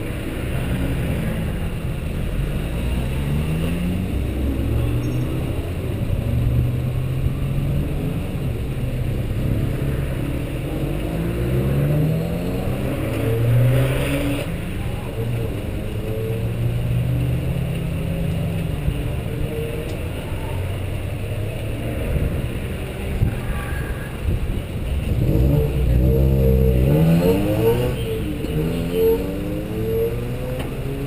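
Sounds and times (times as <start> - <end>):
engine revving: 9.3 - 14.6, 25.1 - 31.0.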